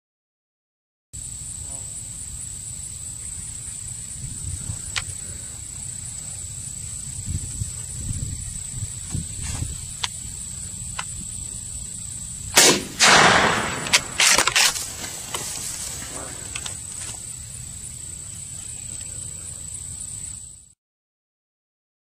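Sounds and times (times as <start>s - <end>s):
steady high whine: 1.2s - 20.8s
wind rumble: 3.1s - 18.2s
goose crashing into tall grass: 12.6s - 16.5s.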